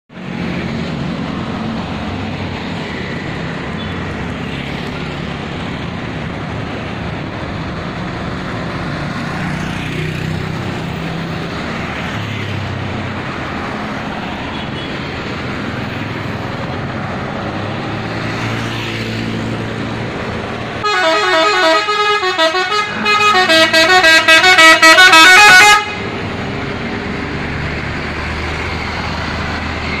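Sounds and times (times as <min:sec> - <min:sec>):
street traffic: 0:00.1 - 0:30.0
bus horn playing a tune: 0:20.8 - 0:26.1.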